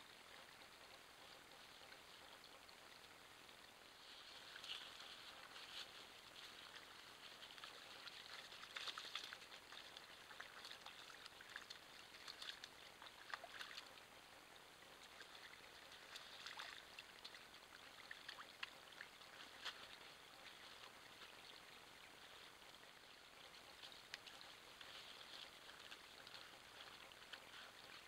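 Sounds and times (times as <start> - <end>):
faint steady hiss: 0.0 - 28.0
wet squelching and crackling: 4.5 - 14.0, 15.2 - 21.4, 23.5 - 28.0.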